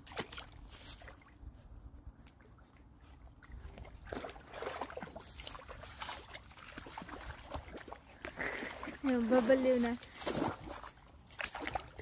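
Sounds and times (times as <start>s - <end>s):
dog splashing through water: 0.0s - 1.2s, 2.2s - 12.0s.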